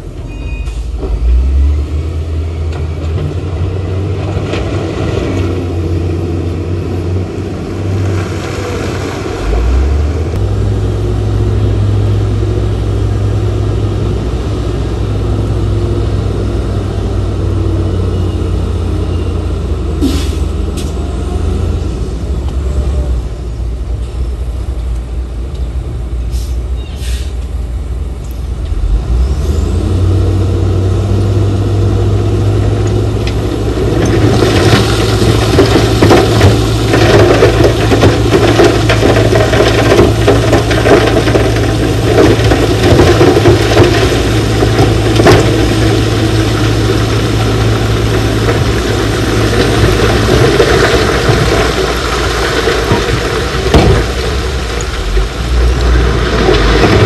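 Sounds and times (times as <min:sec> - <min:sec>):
heavy diesel engine under load: 0:00.0 - 0:57.0
loose rock grinding and tumbling: 0:32.1 - 0:57.0.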